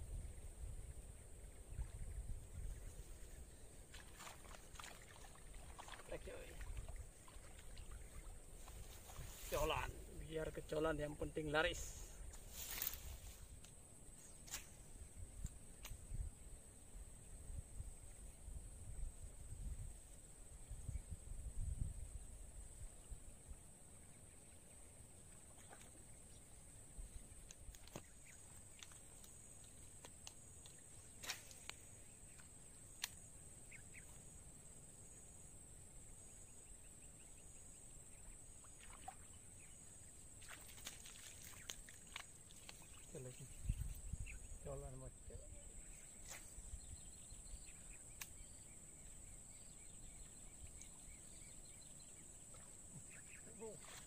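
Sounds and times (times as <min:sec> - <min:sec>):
faint clicks: 0:27.4 - 0:33.3, 0:48.1 - 0:48.5
sharp click: 0:48.1 - 0:48.4.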